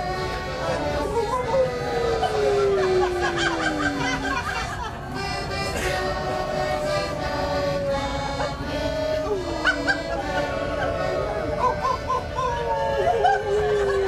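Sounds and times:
button accordion playing: 0.0s - 14.0s.

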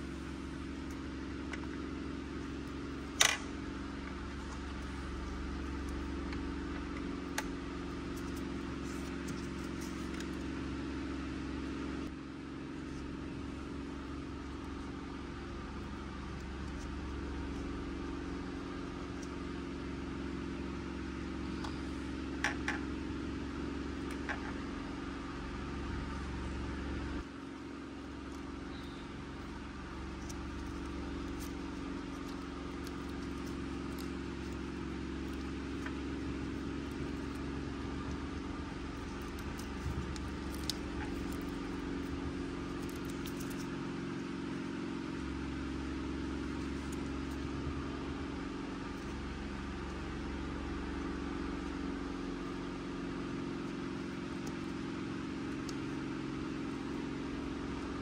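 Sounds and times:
low mechanical hum: 0.0s - 58.0s.

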